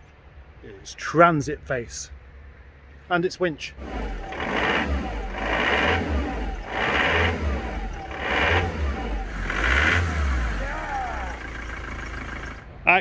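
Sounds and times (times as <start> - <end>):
truck engine surging: 3.7 - 13.0.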